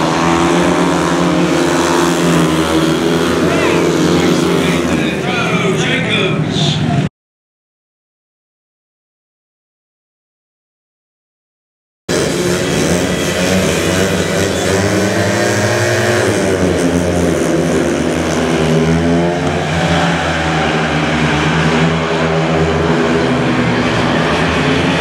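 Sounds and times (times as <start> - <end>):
motorcycle engines racing: 0.0 - 7.1, 12.1 - 25.0.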